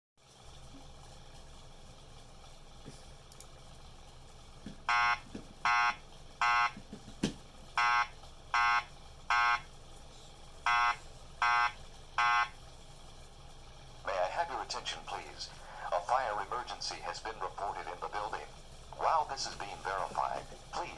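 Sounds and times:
fire alarm evacuation tone: 4.9s - 6.8s, 7.8s - 9.7s, 10.6s - 12.6s.

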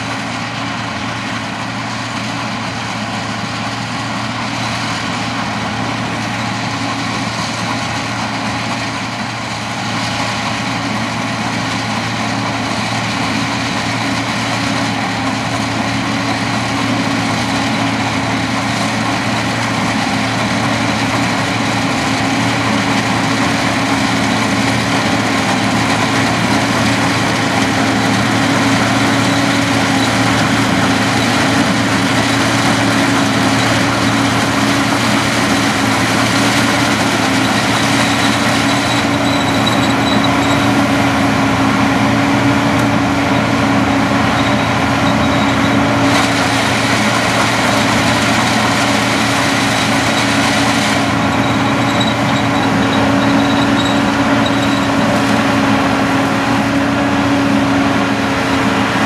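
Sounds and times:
harvester diesel engine drone: 0.0s - 59.0s
truck running: 0.0s - 59.0s
cane chopping and elevator noise: 21.0s - 57.1s.

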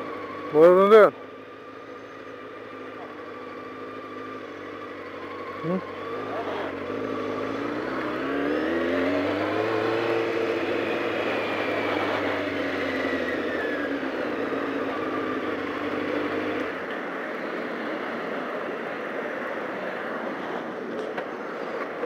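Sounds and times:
motorcycle engine pulling away: 1.8s - 16.8s.

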